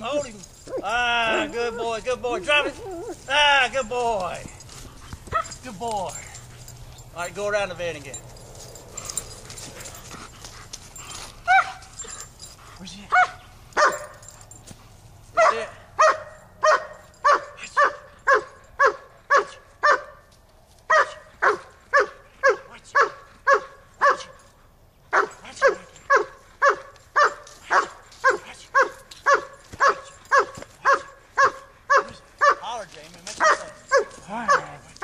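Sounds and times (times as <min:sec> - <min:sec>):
dog barking: 0:05.3 - 0:05.6, 0:11.5 - 0:12.0, 0:13.1 - 0:14.4, 0:15.4 - 0:20.3, 0:20.9 - 0:24.5, 0:25.1 - 0:32.7, 0:33.3 - 0:35.0.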